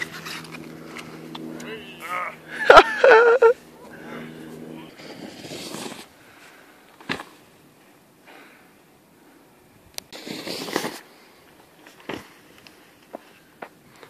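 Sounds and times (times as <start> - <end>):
snowboard landing thud: 7.0 - 7.4.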